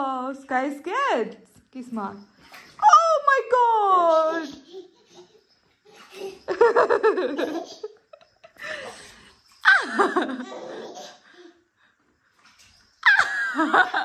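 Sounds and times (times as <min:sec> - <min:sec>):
baby laughing: 0:04.1 - 0:08.0, 0:09.7 - 0:11.2.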